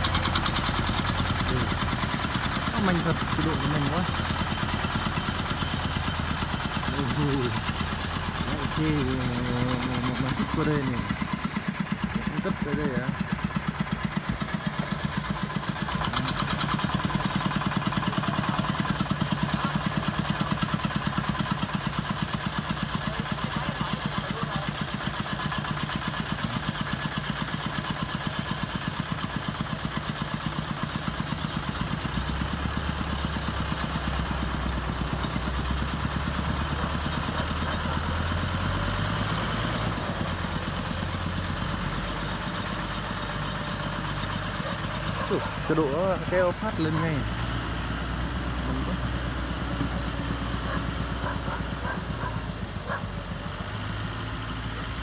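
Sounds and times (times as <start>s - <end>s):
deeper engine drone: 0.0s - 21.4s, 32.1s - 55.0s
diesel tractor engine chugging: 0.0s - 55.0s.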